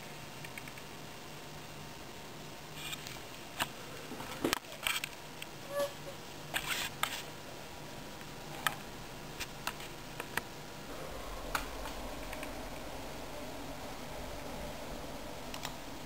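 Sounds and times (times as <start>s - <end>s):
low steady hum: 0.0s - 16.0s
keyboard and mouse clicks: 0.4s - 0.9s, 11.5s - 12.6s, 15.5s - 15.8s.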